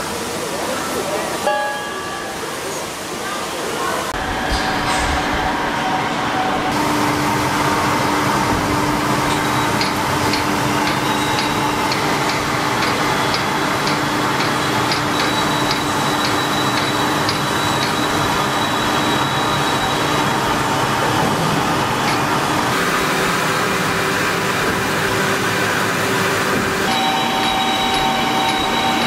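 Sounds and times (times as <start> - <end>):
machinery humming: 0.0 - 29.0.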